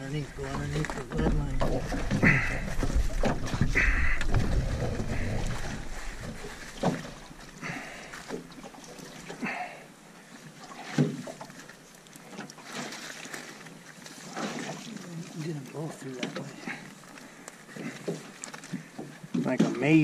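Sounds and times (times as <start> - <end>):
wind rumble on microphone: 0.0 - 7.4
net rustling and knocking on hull: 0.2 - 9.3.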